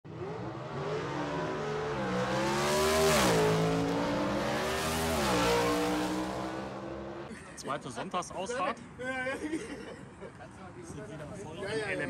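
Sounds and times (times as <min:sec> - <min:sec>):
motorcycle engine accelerating: 0:00.1 - 0:07.3.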